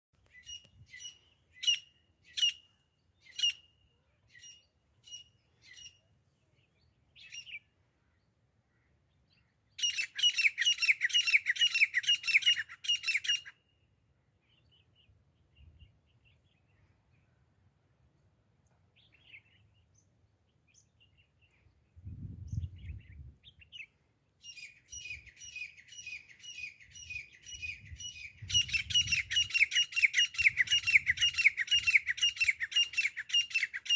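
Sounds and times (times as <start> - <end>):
francolin calling: 9.8 - 13.6, 23.6 - 33.9.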